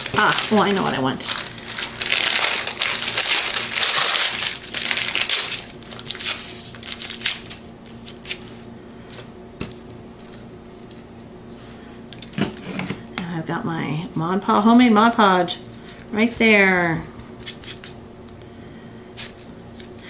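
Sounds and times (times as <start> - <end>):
paper crinkling and tearing: 0.0 - 11.1
faint steady hum: 0.0 - 20.0.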